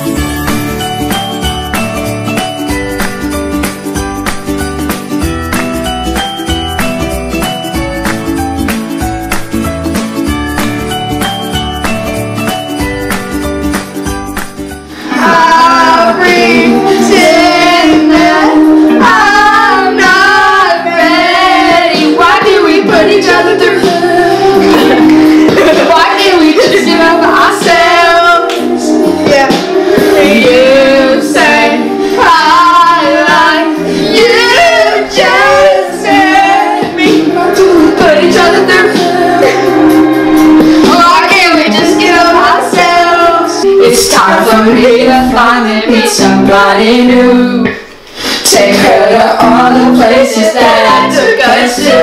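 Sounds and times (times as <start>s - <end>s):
instrumental music: 0.0s - 47.4s
girls singing a pop song: 14.9s - 52.0s.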